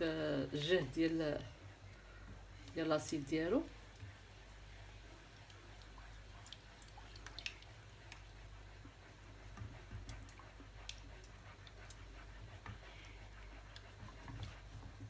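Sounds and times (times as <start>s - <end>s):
low steady hum: 0.0s - 15.0s
faint clicks and ticks: 5.3s - 15.0s.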